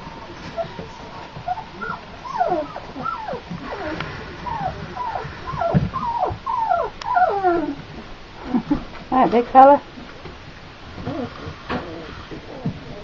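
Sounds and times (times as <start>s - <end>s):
puppies whimpering and squeaking: 0.0s - 7.9s, 11.0s - 13.0s.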